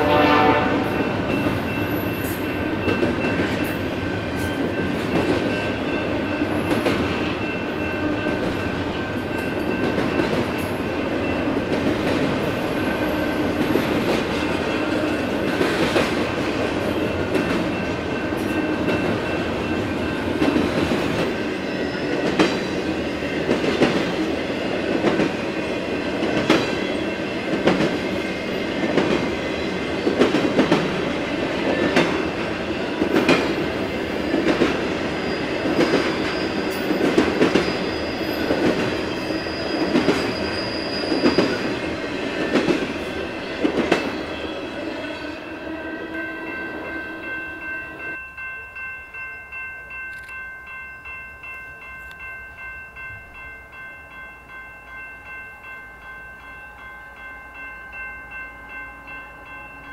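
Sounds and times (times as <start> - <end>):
high wheel squeal: 35.1 - 41.8.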